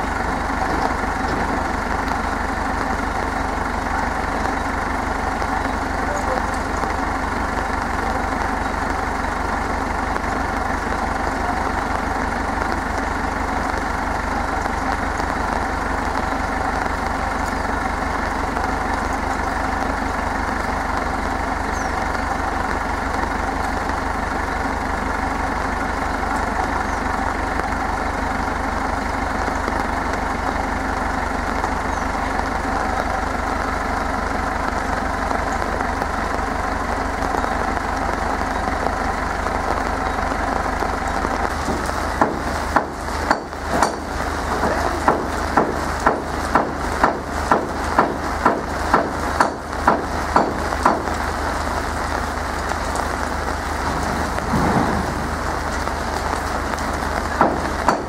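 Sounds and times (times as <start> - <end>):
tractor engine idling: 0.0 - 58.0.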